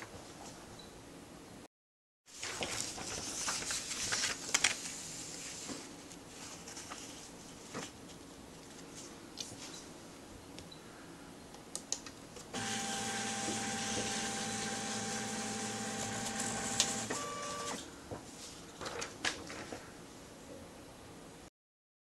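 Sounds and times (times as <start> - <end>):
scanner motor whine: 12.6 - 17.8.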